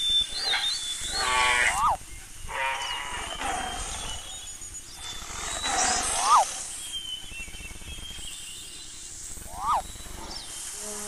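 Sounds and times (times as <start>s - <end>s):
animal calls: 0.3s - 4.4s, 5.0s - 6.8s, 9.4s - 11.0s
steady high-pitched tone: 9.3s - 9.9s.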